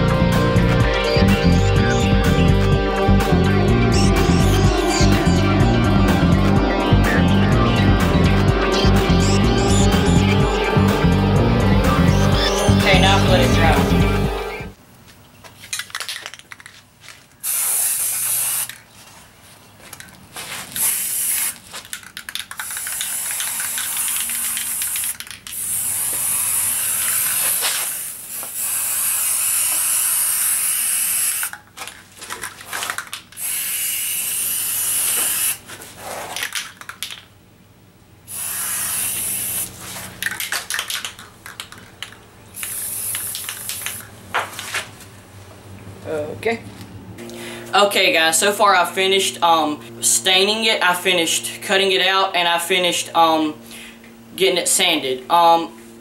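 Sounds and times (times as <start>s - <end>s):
spray paint can spraying: 17.4s - 18.9s, 20.7s - 31.7s, 32.6s - 37.2s, 38.3s - 44.1s.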